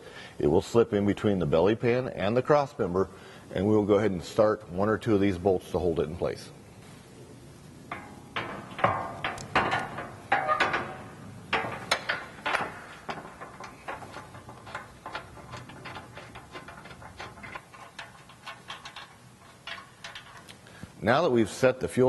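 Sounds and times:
metal plate clanking and scraping: 7.8 - 20.8
light metal knocks and taps: 7.9 - 20.6.

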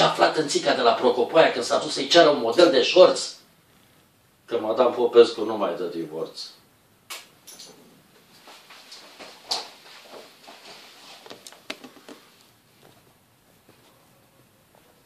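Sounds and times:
soft knocks and shuffles: 8.2 - 14.1.

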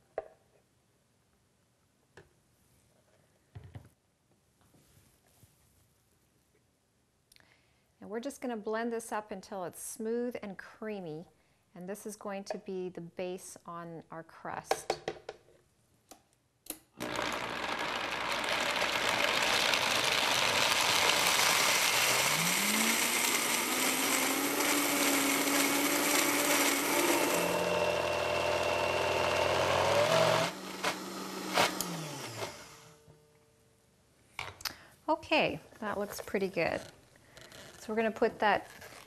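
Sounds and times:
blender motor running: 17.0 - 33.0.

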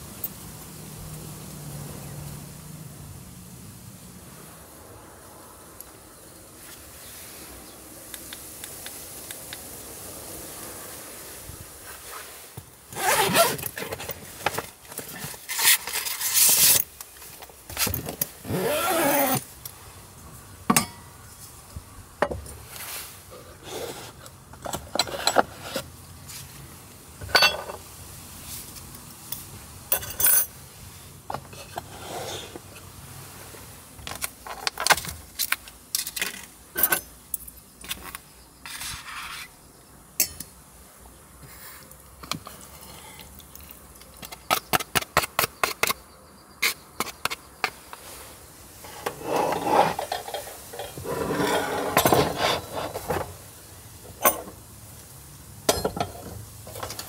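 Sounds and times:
plastic container rustling and scraping: 11.8 - 19.5, 22.6 - 25.9, 47.7 - 53.4
metal cup and utensils set down: 27.2 - 27.8, 29.9 - 30.5, 54.2 - 54.6, 55.7 - 57.0.

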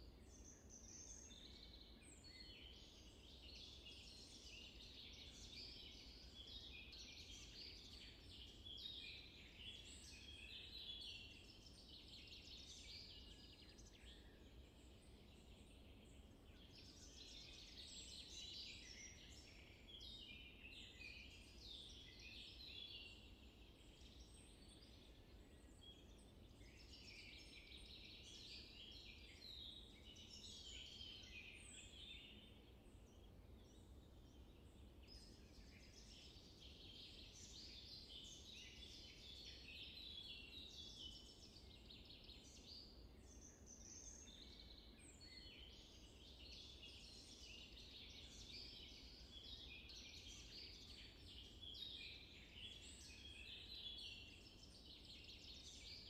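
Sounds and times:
faint low background noise: 0.0 - 56.0
small birds chirping: 0.0 - 56.0.

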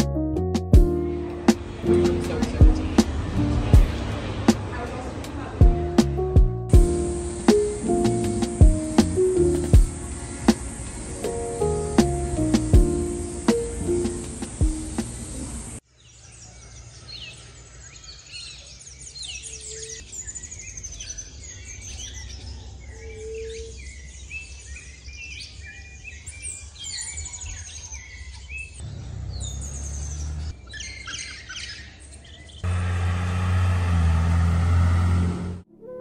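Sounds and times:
bus engine rumble: 0.9 - 15.8, 32.7 - 35.7
birds chirping: 1.0 - 35.2.

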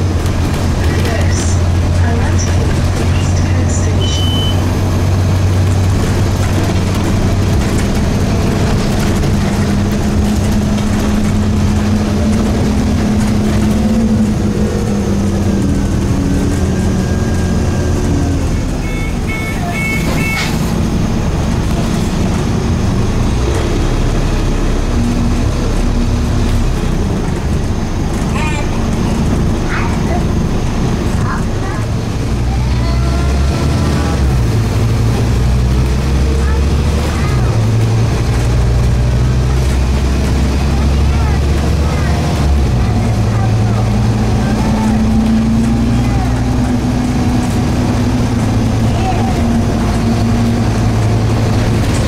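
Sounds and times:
bus diesel engine running: 0.0 - 52.0
short high beeps: 4.0 - 4.7, 18.8 - 20.5.

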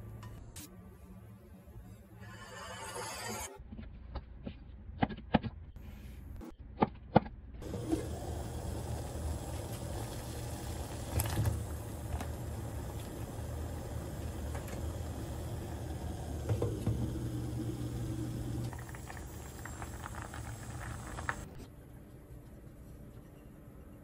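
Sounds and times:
water boiling in a pot: 7.6 - 21.6.

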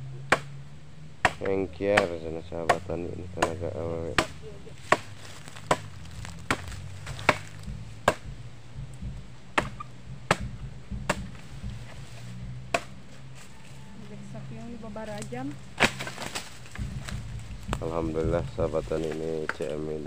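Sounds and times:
machete chopping wood: 0.3 - 0.6, 1.2 - 13.1, 15.7 - 19.8.

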